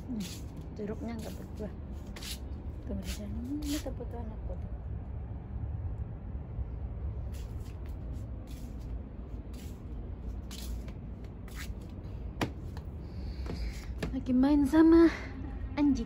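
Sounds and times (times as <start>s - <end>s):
steady low rumble: 0.0s - 16.0s
footsteps on wet decking boards: 10.3s - 14.2s.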